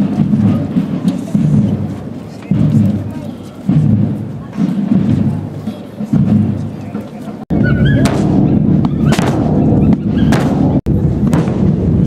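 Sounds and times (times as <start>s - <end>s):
bass drums rumbling roll: 0.0s - 12.0s.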